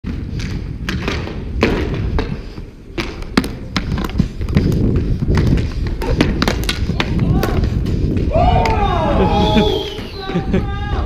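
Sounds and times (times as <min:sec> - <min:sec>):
skate wheels rolling on wood: 0:00.0 - 0:11.0
hockey stick knocking ball: 0:03.0 - 0:07.7.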